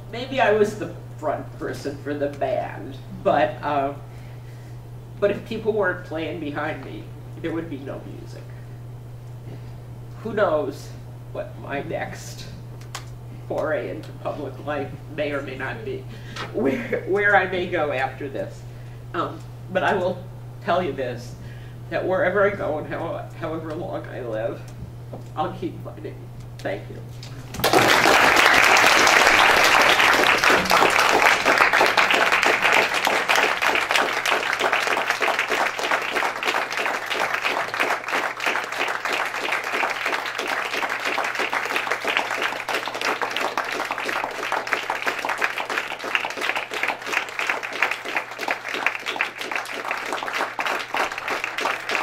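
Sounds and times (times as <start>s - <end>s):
audience applauding: 27.4s - 52.0s.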